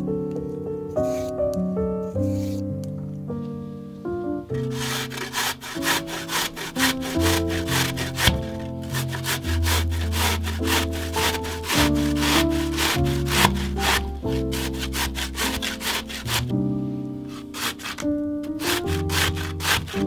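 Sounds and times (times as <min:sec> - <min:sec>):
background music: 0:00.0 - 0:20.0
zucchini rasped on a grater: 0:04.6 - 0:16.5, 0:17.3 - 0:20.0.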